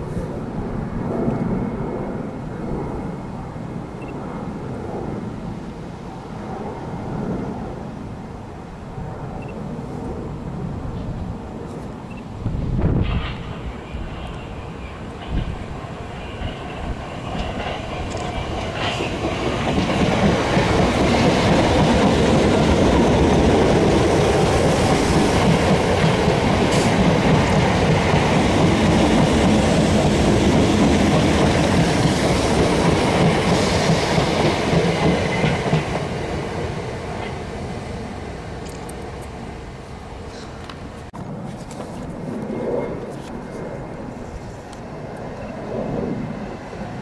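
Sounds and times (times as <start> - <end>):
train wheels rumbling on rail: 11.0 - 47.0.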